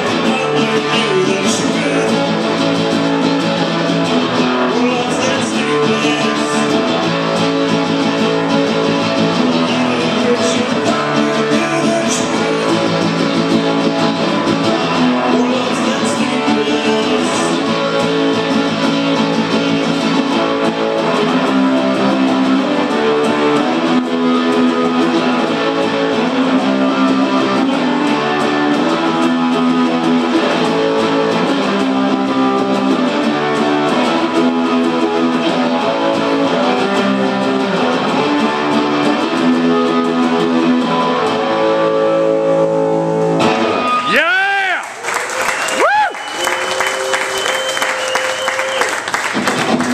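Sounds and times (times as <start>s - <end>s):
acoustic guitar strumming: 0.0s - 44.8s, 46.2s - 49.9s.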